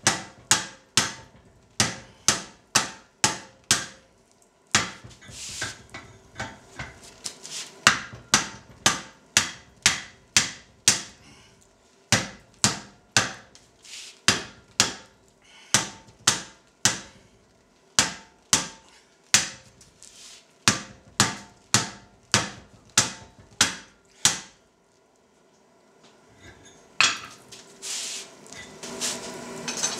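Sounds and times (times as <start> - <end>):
hammer striking hot steel on anvil: 0.0 - 4.1, 4.8 - 7.1, 7.8 - 11.3, 12.1 - 13.6, 14.3 - 17.2, 18.0 - 19.7, 20.7 - 24.6, 26.4 - 27.4.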